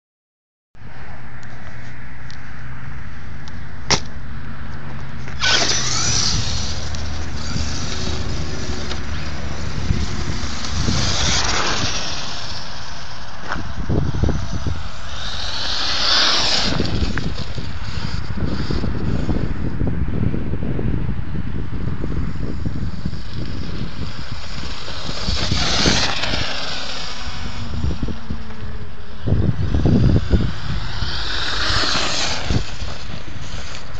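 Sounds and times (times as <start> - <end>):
tyres on gravel: 3.9 - 19.7, 22.0 - 33.9
wind rumbling on microphone: 5.1 - 33.9
electric motor high whine: 5.2 - 19.8, 22.0 - 33.9.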